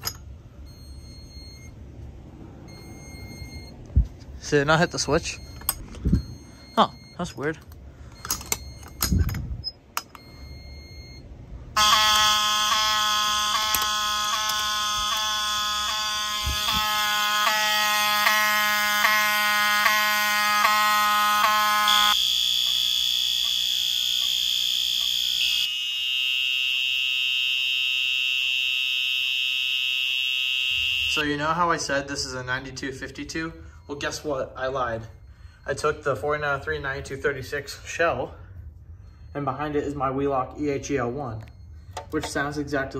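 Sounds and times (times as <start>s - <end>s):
steady high alarm tone: 4.4s - 9.2s, 10.2s - 42.9s
pulsing fire alarm horn: 11.7s - 31.6s.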